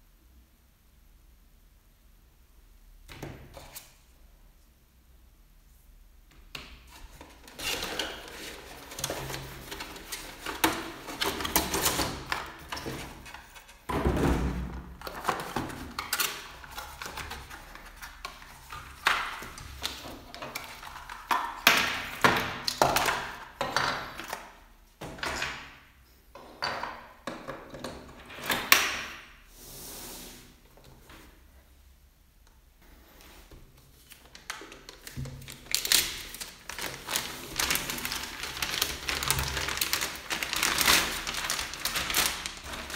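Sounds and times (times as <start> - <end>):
plastic parts knocking and clicking: 6.3 - 29.2
cardboard packaging rustling: 6.9 - 23.5, 33.4 - 42.9.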